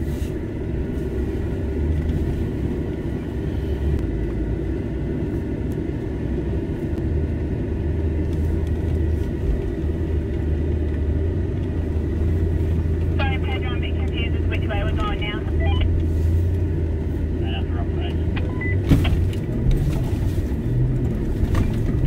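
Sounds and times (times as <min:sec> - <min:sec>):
vehicle engine low rumble: 0:00.0 - 0:22.0.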